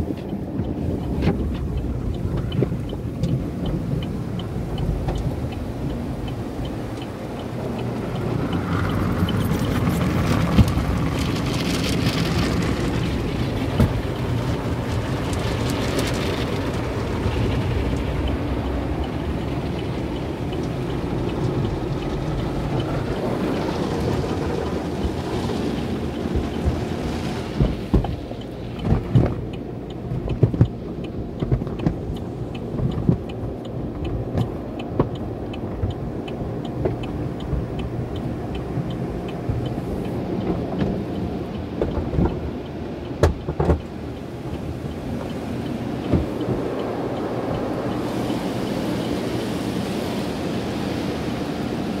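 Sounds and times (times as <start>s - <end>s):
cloth strips slapping a car: 22.2s - 29.5s.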